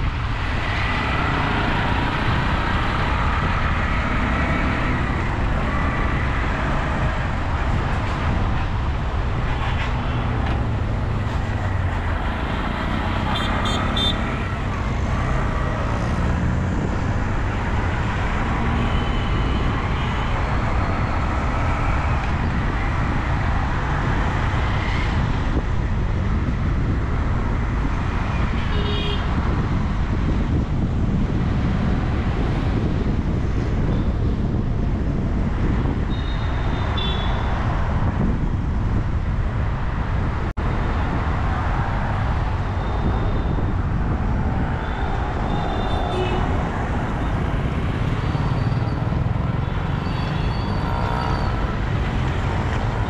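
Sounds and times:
traffic rumble: 0.0 - 53.0
vehicle horn toots: 13.3 - 14.2, 36.2 - 37.4.

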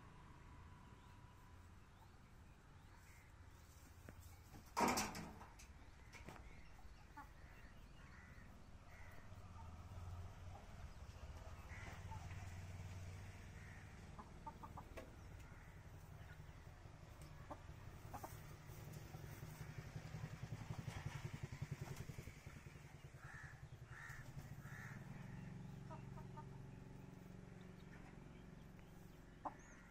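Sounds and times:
low steady rumble: 0.0 - 29.9
chickens clucking: 3.6 - 7.6, 10.5 - 29.9.

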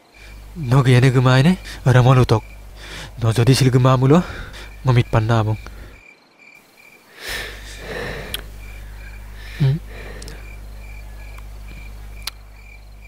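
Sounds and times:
person breathing heavily: 0.0 - 0.6, 1.5 - 1.9, 2.7 - 3.2, 4.1 - 4.9, 5.6 - 6.0, 7.1 - 11.4
steady low hum: 0.0 - 6.0, 6.6 - 13.0
cricket chirping: 0.0 - 13.0
person humming briefly: 9.4 - 10.4.

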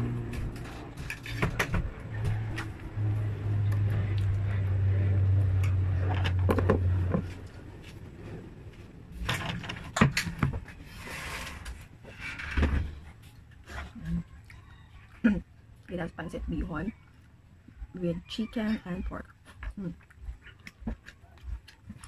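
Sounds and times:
low steady hum: 0.0 - 22.0
person chewing noodles: 19.4 - 22.0.

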